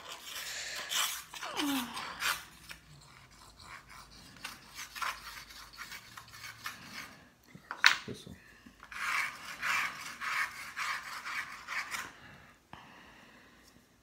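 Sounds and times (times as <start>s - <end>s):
tool scratching a screen: 0.0s - 7.2s, 8.9s - 12.1s.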